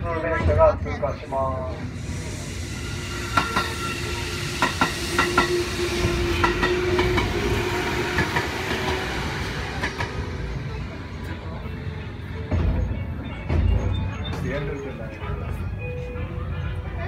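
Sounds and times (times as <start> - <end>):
train rolling rumble: 0.0 - 17.0
train wheels clacking over rail joints: 4.6 - 11.4.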